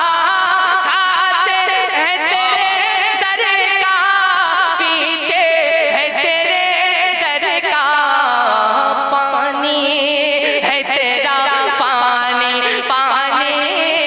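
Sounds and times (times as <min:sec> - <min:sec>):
man singing ornamented notes: 0:00.0 - 0:14.0.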